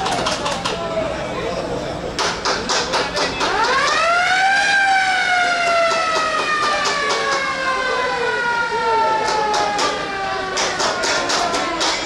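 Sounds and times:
siren rising and falling: 0:03.5 - 0:12.0.

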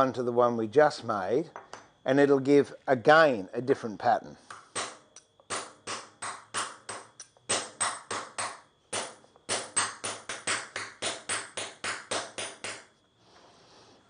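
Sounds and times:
hammer tapping metal punch: 0:04.5 - 0:12.9.

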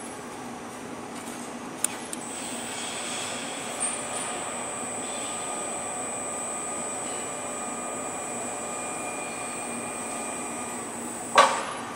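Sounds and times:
electric gear motors humming: 0:02.2 - 0:11.4
thin high whine: 0:02.3 - 0:11.4.

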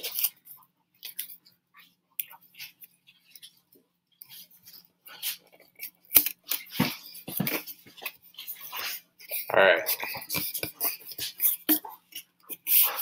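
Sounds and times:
paper and tape crinkling: 0:00.0 - 0:01.5.

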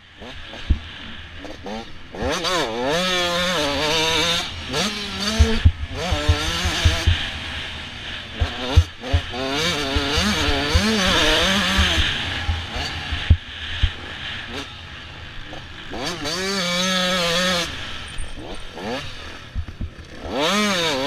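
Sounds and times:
motocross bike engine revving: 0:00.0 - 0:21.0
low thumps: 0:11.7 - 0:14.0.

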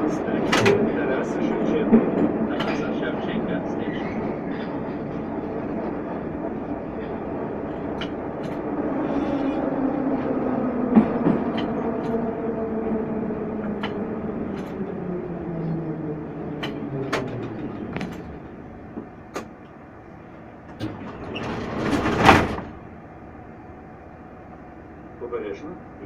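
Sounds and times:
train running noise: 0:00.0 - 0:26.0
sharp clicks and knocks: 0:13.7 - 0:14.8, 0:16.6 - 0:18.3.

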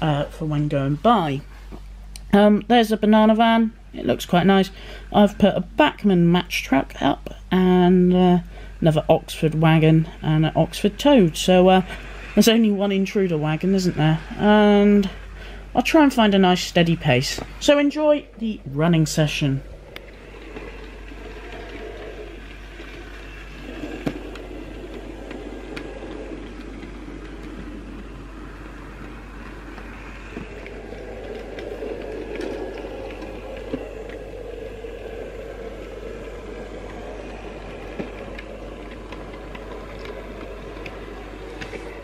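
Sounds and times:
wheels clicking on rails: 0:02.2 - 0:42.0
small electric motor whirring: 0:19.7 - 0:42.0.

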